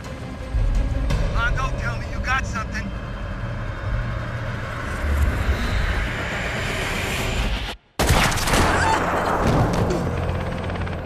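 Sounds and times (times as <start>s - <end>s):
helicopter rotor and engine: 8.8s - 11.0s.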